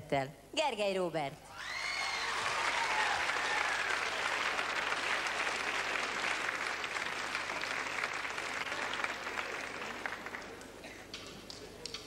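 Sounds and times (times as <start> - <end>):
audience applauding: 1.6 - 12.0.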